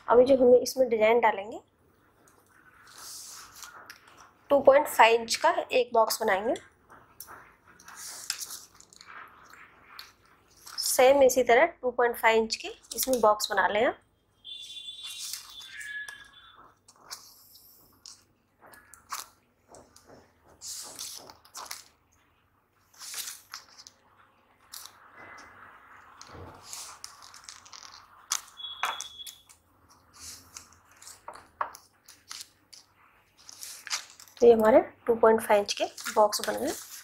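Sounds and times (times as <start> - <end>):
chalk scratching on fabric: 2.7 - 3.8, 7.3 - 9.2, 20.5 - 21.3, 30.1 - 31.3
fabric rustling: 16.8 - 28.7, 29.8 - 34.5, 35.5 - 37.0.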